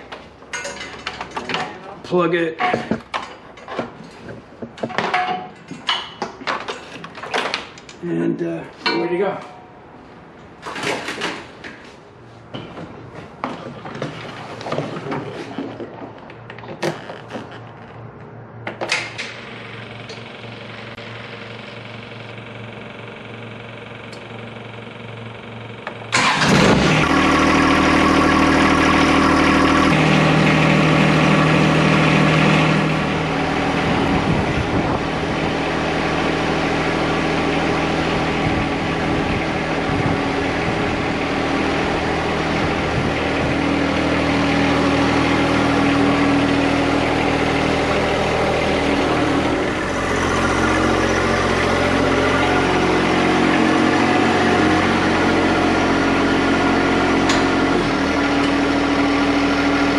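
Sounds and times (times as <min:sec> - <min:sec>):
diesel tractor engine running: 0:12.9 - 0:59.9.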